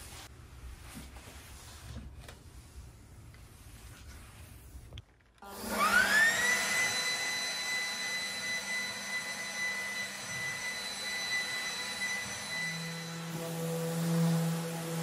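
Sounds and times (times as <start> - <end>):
leaf blower whine: 5.4 - 15.0.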